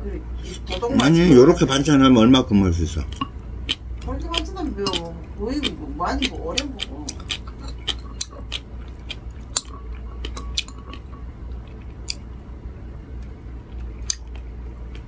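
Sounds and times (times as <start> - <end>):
low steady hum: 0.0 - 15.0
person chewing pickle: 3.0 - 12.3, 13.6 - 15.0.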